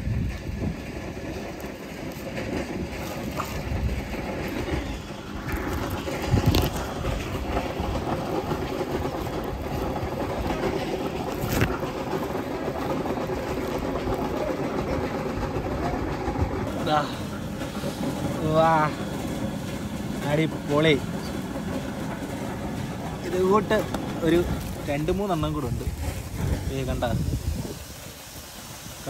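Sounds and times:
plastic sack rustling: 5.5s - 12.4s, 23.2s - 28.7s.

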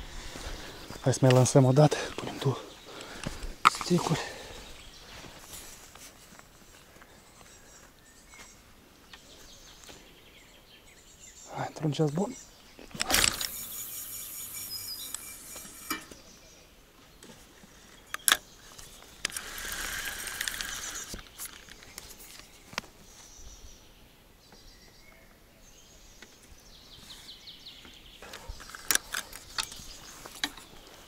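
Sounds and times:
spinning reel whirring: 13.1s - 16.1s, 19.3s - 21.1s.

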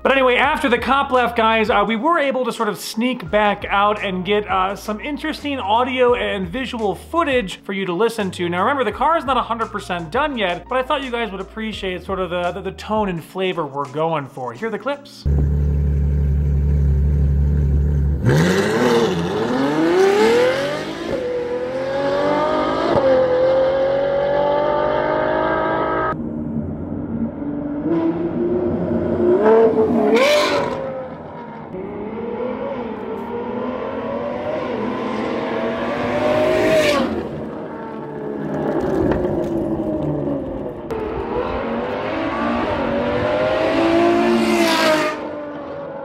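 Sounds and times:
loud car exhaust revving: 15.3s - 30.9s.

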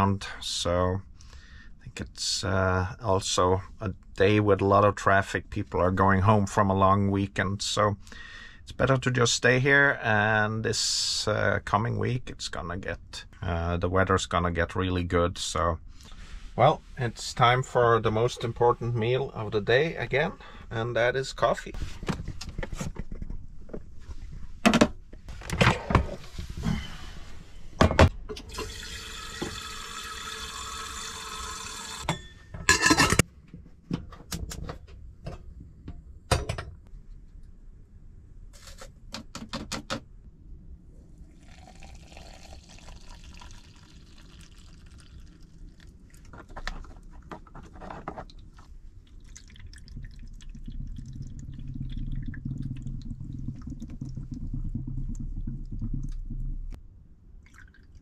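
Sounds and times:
water being poured: 28.5s - 32.1s, 41.2s - 47.2s, 48.2s - 56.8s, 57.4s - 58.0s
water running into vessel: 28.5s - 32.1s, 41.3s - 47.2s, 48.2s - 56.8s, 57.4s - 58.0s.

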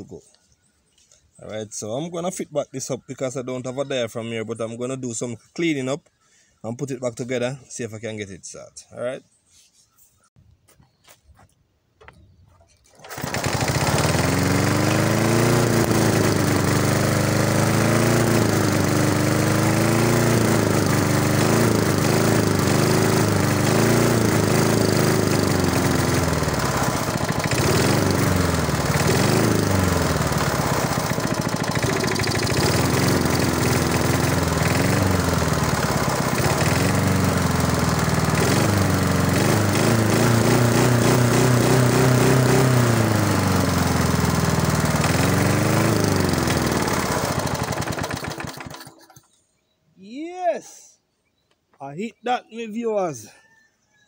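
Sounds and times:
lawn mower engine revving unevenly: 12.9s - 49.3s.

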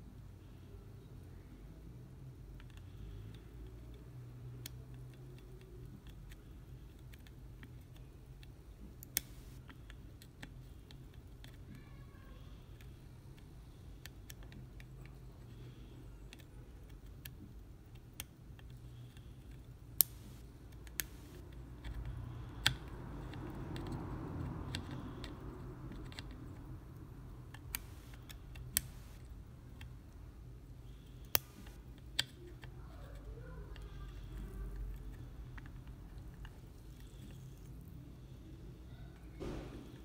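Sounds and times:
faint low hum: 0.0s - 40.0s
small metal clicks on circuit board: 14.0s - 25.4s.

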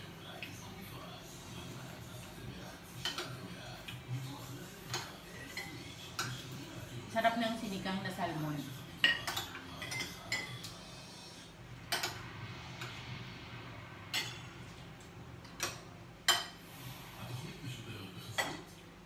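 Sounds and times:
spoons clinking on plates: 2.9s - 4.0s, 4.7s - 6.5s, 9.0s - 10.8s, 11.8s - 12.2s, 14.1s - 14.5s, 15.5s - 16.6s.

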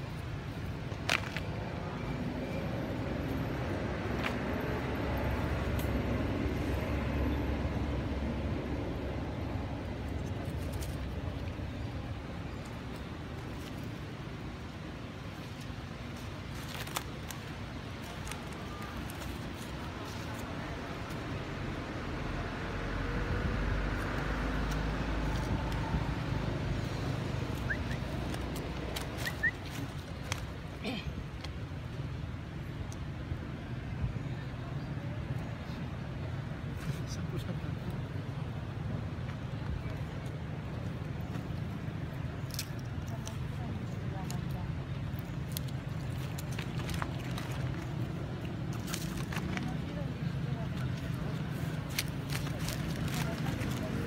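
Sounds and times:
low outdoor rumble: 0.0s - 54.0s.

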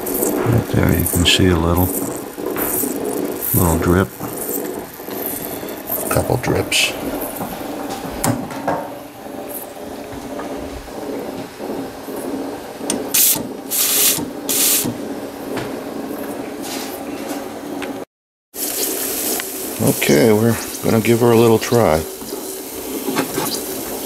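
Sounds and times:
steady background noise: 0.0s - 18.1s
short hisses of steam: 13.2s - 14.9s.

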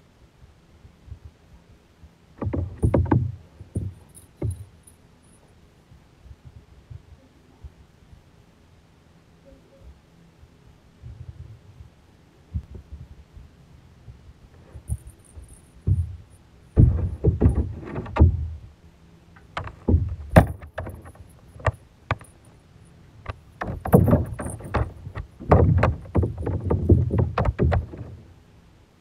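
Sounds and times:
sharp knocks underwater: 16.8s - 18.5s, 23.6s - 28.2s.

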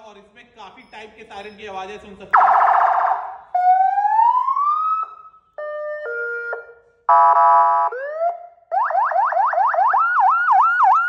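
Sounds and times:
electronic car siren: 2.4s - 11.0s.

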